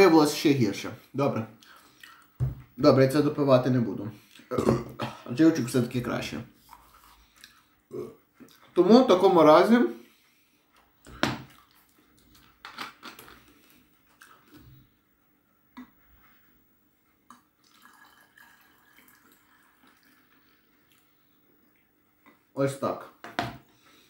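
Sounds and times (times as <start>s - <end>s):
liquid trickling and dripping: 17.3s - 21.1s.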